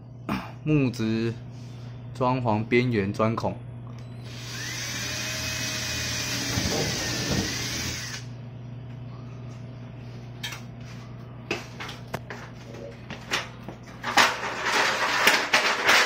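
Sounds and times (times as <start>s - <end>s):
cordless drill boring into wood: 4.3s - 8.3s.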